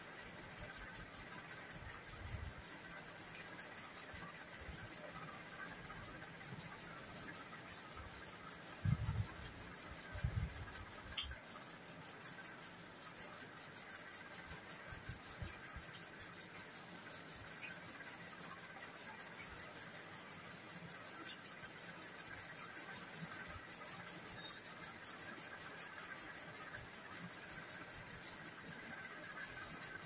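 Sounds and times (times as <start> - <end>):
faint steady hiss: 0.0 - 30.0.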